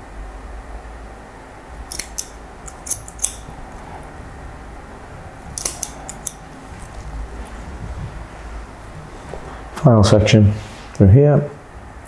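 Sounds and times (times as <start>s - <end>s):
scissors snipping hair: 1.8s - 3.5s, 5.5s - 7.1s.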